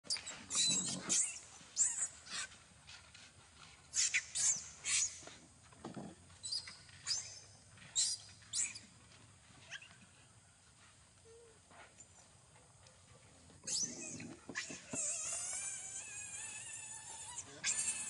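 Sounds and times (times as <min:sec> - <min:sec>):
young monkey screaming: 0:13.7 - 0:18.0.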